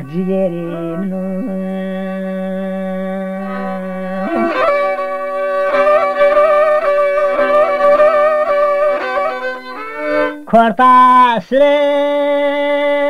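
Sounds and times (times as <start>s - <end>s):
solo violin melody: 0.3s - 10.6s
low drone note: 1.4s - 10.3s.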